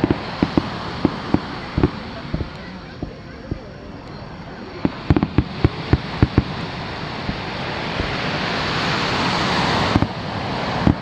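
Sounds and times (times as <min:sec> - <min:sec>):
firework crackles and pops: 0:00.0 - 0:11.0
surf washing onto beach: 0:00.0 - 0:11.0.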